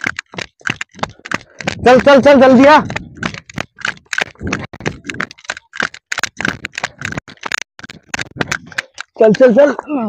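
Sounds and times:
dry grass rustling: 0:00.0 - 0:09.2
footsteps on dirt path: 0:00.0 - 0:09.9.

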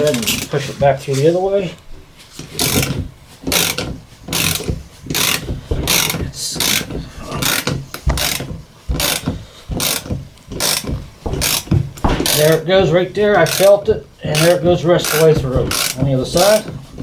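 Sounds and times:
ratchet clicking: 0:02.6 - 0:12.6, 0:13.4 - 0:16.7.

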